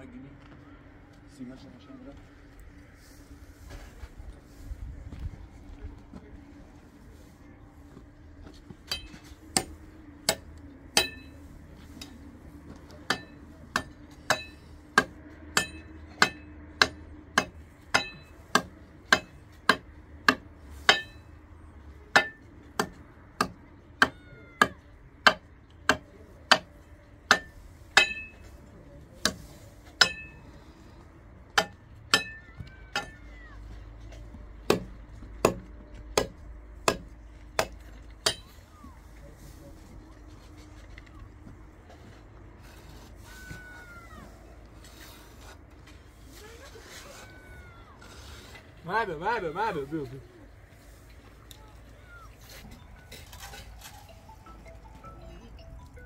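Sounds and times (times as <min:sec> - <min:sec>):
hammer blows with metallic ring: 0:08.8 - 0:11.5, 0:13.0 - 0:21.4, 0:22.1 - 0:28.5, 0:29.2 - 0:30.6.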